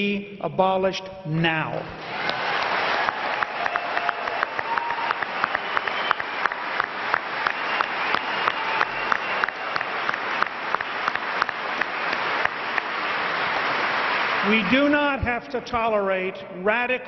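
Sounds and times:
nearer sharp claps: 2.0s - 14.7s
large audience applauding: 2.0s - 15.2s.

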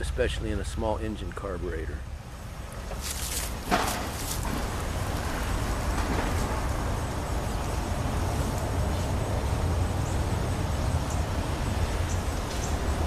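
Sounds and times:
hands rustling: 2.9s - 4.6s.

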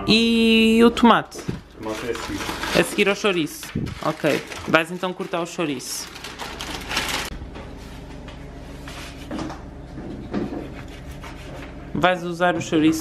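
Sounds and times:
steady low hum: 0.0s - 13.0s
plastic wrapping crinkling: 1.6s - 7.4s.

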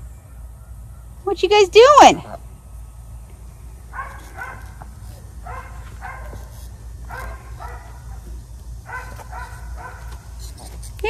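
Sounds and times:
geese honking: 1.5s - 2.5s.

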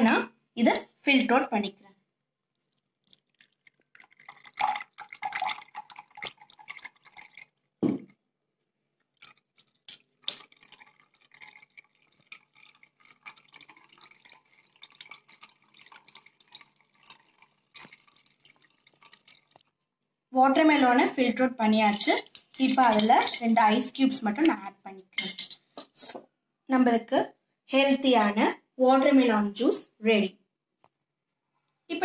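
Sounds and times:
juice dripping: 2.2s - 20.2s
juice pouring into a glass: 2.5s - 8.2s, 9.1s - 19.8s.

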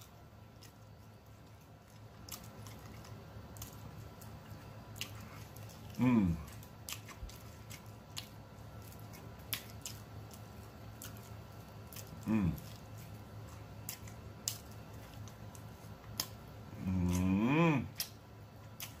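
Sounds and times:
wet chewing and lip-smacking: 0.0s - 19.0s
person humming mmm: 6.0s - 6.5s, 12.2s - 12.8s, 16.7s - 18.0s.

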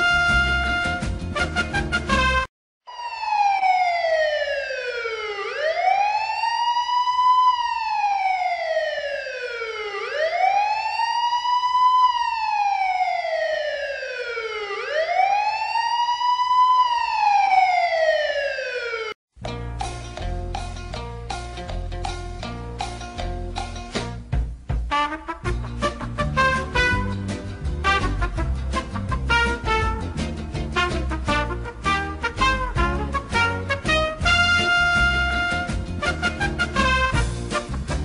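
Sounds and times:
music: 0.0s - 2.5s, 19.4s - 38.0s
wailing siren: 2.8s - 19.2s.

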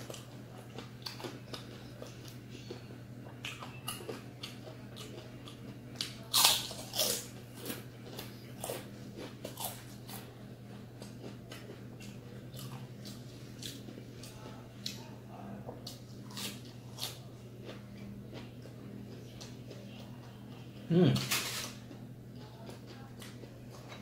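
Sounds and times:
crunching fried chicken skin: 3.5s - 10.2s, 21.1s - 24.0s.

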